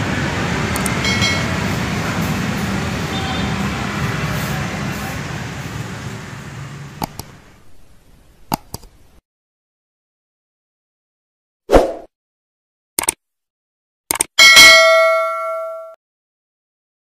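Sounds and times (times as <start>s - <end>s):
street traffic noise: 0.0s - 9.2s
sharp clicks: 0.7s - 1.0s, 7.0s - 7.3s, 8.5s - 8.9s, 13.0s - 13.2s, 14.1s - 14.4s.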